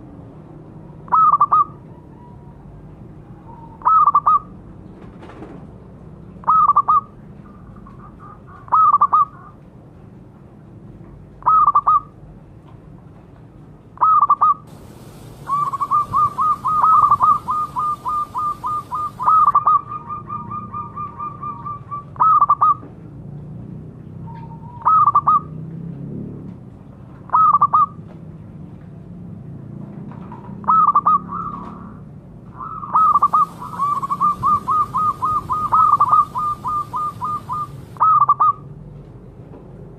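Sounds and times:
dove cooing: 14.1s - 22.7s, 32.6s - 38.5s
fast staccato bird notes: 15.2s - 19.6s, 33.0s - 38.0s.

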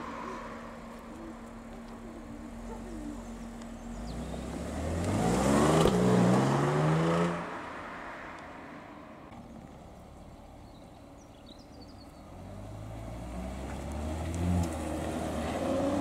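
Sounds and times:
car engine accelerating hard: 0.0s - 8.0s, 12.2s - 16.0s.

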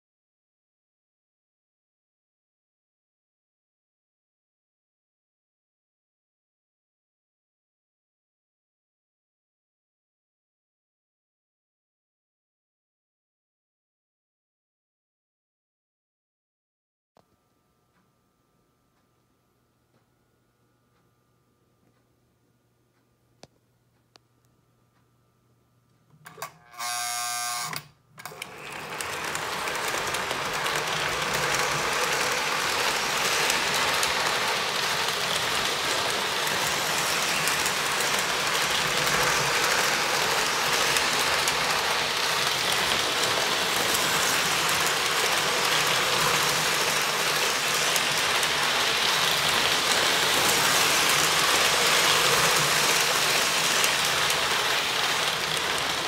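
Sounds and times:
brief buzzing tone: 26.2s - 28.0s
model train clattering on rails: 28.2s - 56.0s.

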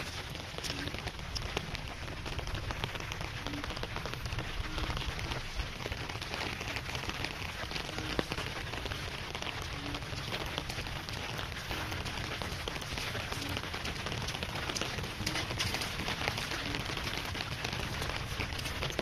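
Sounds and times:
rain pattering: 0.0s - 19.0s.

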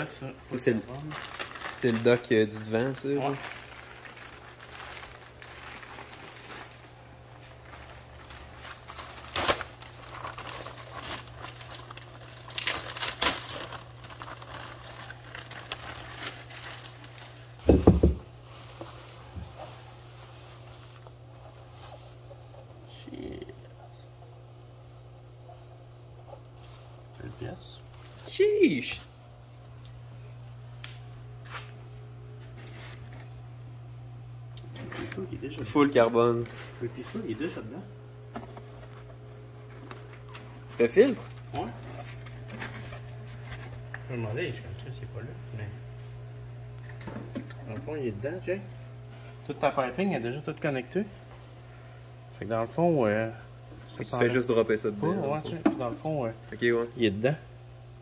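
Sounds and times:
plastic wrap crinkling: 0.0s - 22.6s, 26.6s - 30.0s, 32.3s - 33.4s, 34.6s - 44.9s
steady low hum: 0.0s - 58.0s
foam sheet rustling: 0.5s - 22.5s, 32.4s - 33.3s, 38.5s - 44.6s.

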